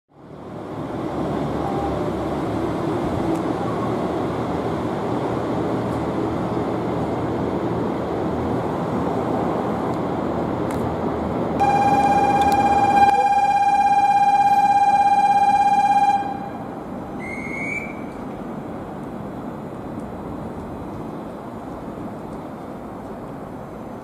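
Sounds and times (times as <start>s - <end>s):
loud steady buzzing tone: 11.6s - 17.5s.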